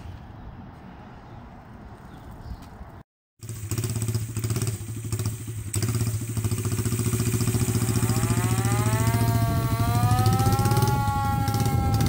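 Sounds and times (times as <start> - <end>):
small engine running: 3.4 - 12.0.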